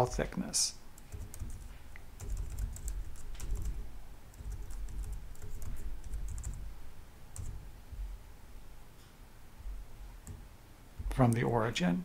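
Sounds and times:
typing on computer keyboard: 1.0s - 6.7s, 7.4s - 7.6s.

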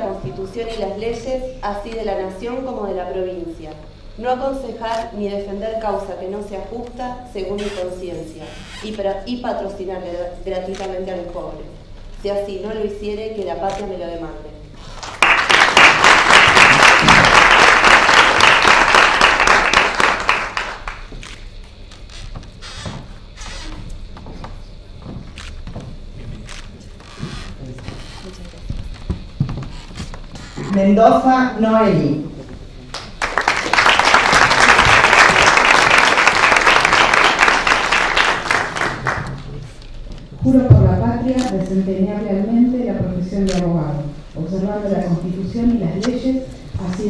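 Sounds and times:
crowd applause: 15.0s - 21.1s, 32.9s - 39.4s.

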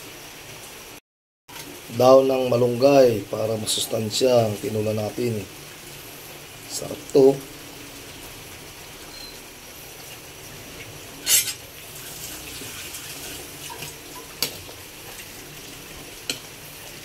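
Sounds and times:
broth simmering with hiss: 0.0s - 17.0s
spoon scraping metal pot: 11.2s - 11.6s
utensil clinking on pot: 11.2s - 11.6s.

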